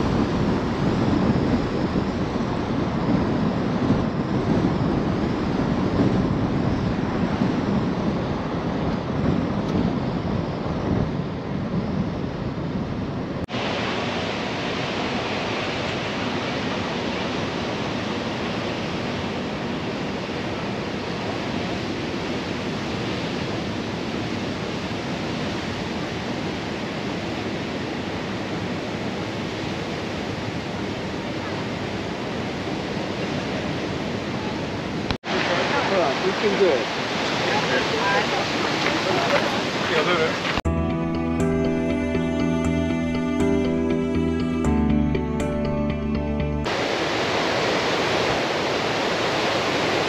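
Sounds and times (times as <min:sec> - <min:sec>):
wind buffeting microphone: 0:00.0 - 0:13.7
steady rush of wind: 0:00.0 - 0:44.8, 0:45.4 - 0:50.0
surf: 0:35.0 - 0:50.0.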